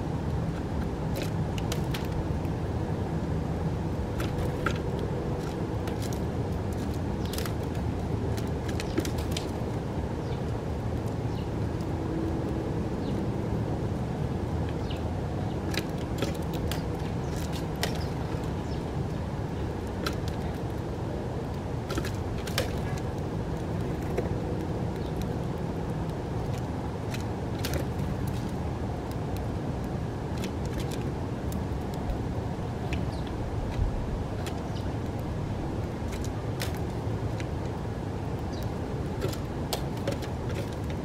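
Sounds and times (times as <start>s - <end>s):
distant road traffic rumble: 0.0s - 41.0s
sparrows chirping: 6.8s - 7.7s, 10.1s - 10.5s, 11.2s - 11.6s, 13.0s - 13.2s, 14.7s - 15.8s, 16.4s - 20.6s, 24.9s - 25.2s, 33.0s - 33.4s, 34.5s - 35.0s, 38.4s - 38.8s.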